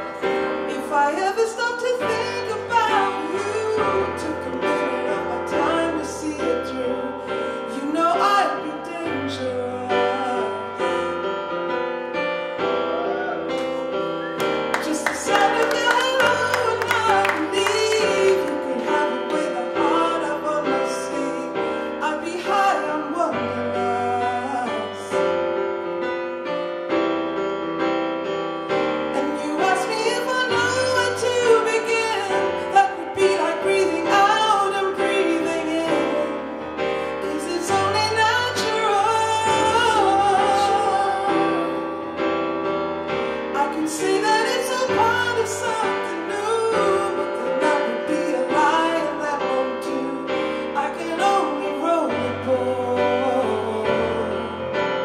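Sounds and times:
keyboard chords: 0:00.0 - 0:55.0
woman singing into microphone: 0:00.7 - 0:07.1, 0:14.7 - 0:24.9, 0:29.2 - 0:36.4, 0:37.2 - 0:41.8.

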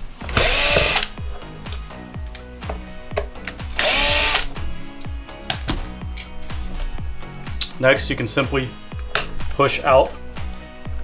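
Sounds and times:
cordless drill whining: 0:00.3 - 0:01.1, 0:03.8 - 0:04.5.

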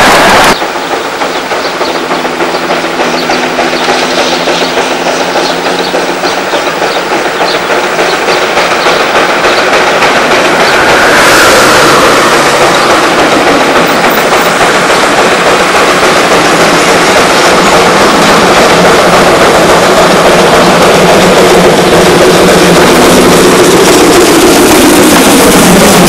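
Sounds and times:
steam locomotive running: 0:00.0 - 0:26.0
road and wind noise: 0:09.4 - 0:26.0.

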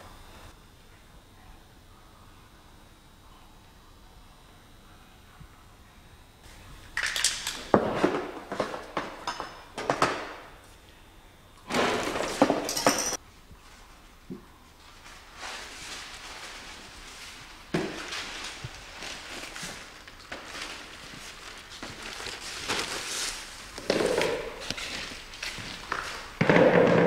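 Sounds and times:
paint bottles and tools clinking: 0:12.2 - 0:13.2.

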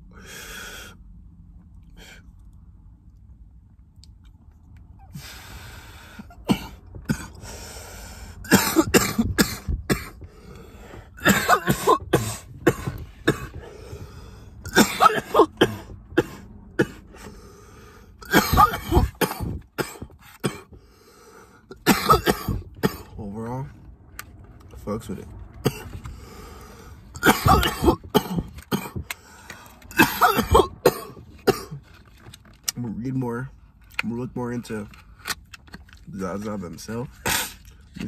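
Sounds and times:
man coughing hard: 0:06.3 - 0:07.4, 0:08.4 - 0:10.2, 0:11.2 - 0:13.7, 0:14.7 - 0:17.2, 0:18.2 - 0:20.8, 0:21.7 - 0:23.2, 0:25.6 - 0:26.0, 0:27.2 - 0:29.0, 0:29.9 - 0:31.8.

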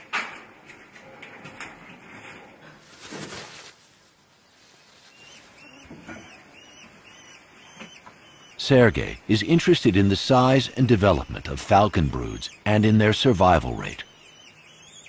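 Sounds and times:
falcons calling: 0:05.1 - 0:15.0.

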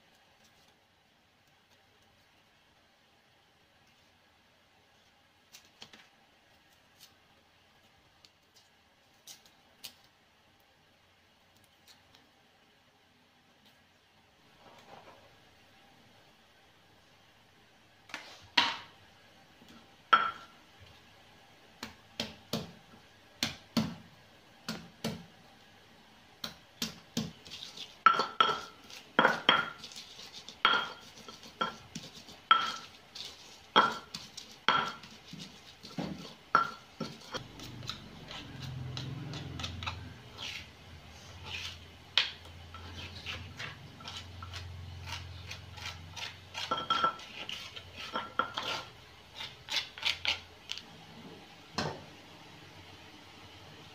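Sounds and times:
pestle grinding spice paste: 0:26.8 - 0:40.8, 0:41.4 - 0:50.5
stone pestle knocking in mortar: 0:33.8 - 0:35.1.

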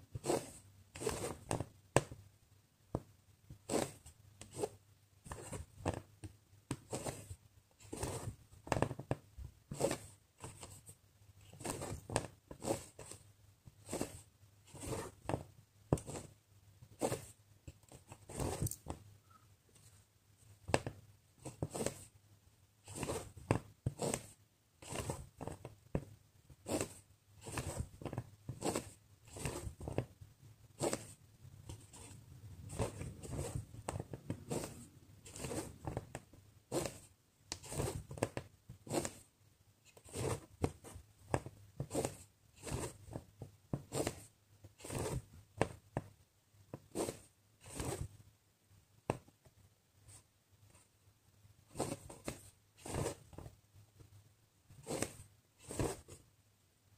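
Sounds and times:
thread pulled through fabric: 0:30.7 - 0:39.3.

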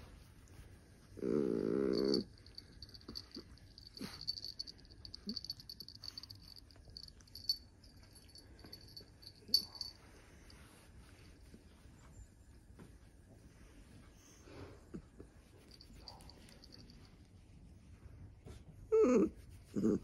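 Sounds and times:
dog moaning: 0:01.2 - 0:04.6
hands rubbing fur: 0:01.9 - 0:11.9, 0:15.4 - 0:17.0.

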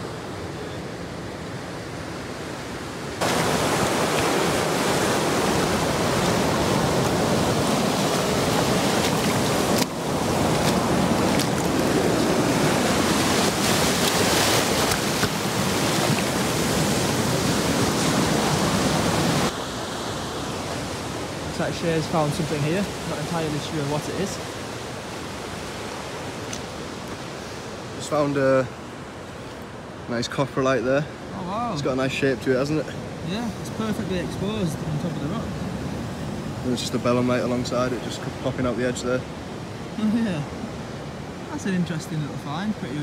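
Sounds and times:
faint surf: 0:00.0 - 0:43.0
wind: 0:00.0 - 0:43.0
water rushing over rocks: 0:02.6 - 0:29.3.

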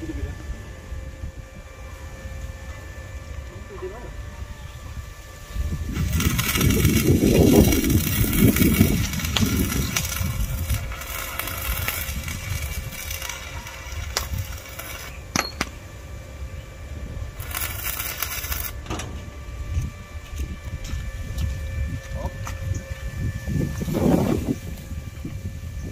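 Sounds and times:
welding arc crackling: 0:05.6 - 0:16.3, 0:17.1 - 0:22.8.

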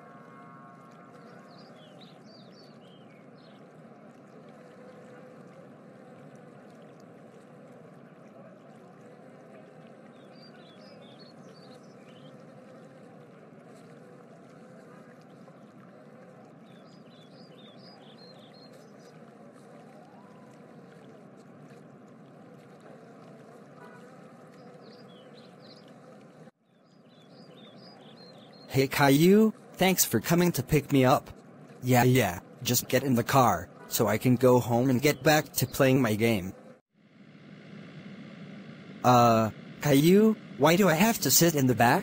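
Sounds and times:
faint rushing background noise: 0:27.3 - 0:42.0.

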